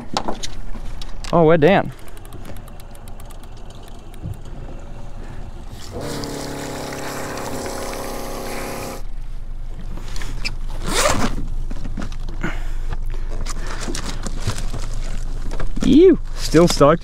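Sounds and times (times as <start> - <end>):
fishing reel motor whirring: 1.9 - 9.0
loud scrape: 5.7 - 9.1.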